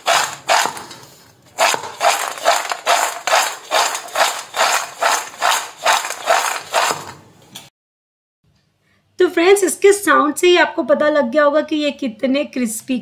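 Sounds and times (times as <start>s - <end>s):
snacks rattling in steel bowl: 0.0s - 0.8s, 1.6s - 7.2s.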